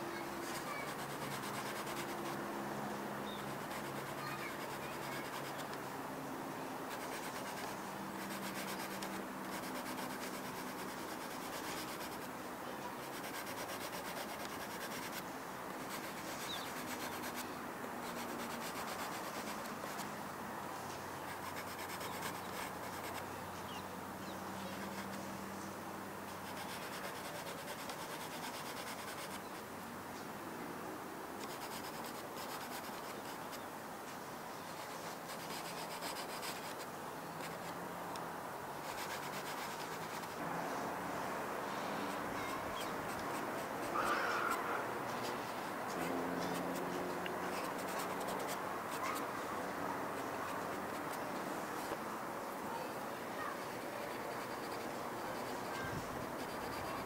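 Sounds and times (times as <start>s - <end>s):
pastel stick scratching paper: 0.1s - 2.5s, 3.1s - 5.8s, 6.8s - 20.1s, 21.2s - 23.3s, 24.6s - 25.3s, 26.2s - 29.6s, 31.4s - 33.6s, 34.7s - 37.8s, 38.8s - 40.4s, 41.7s - 52.0s, 53.4s - 57.0s.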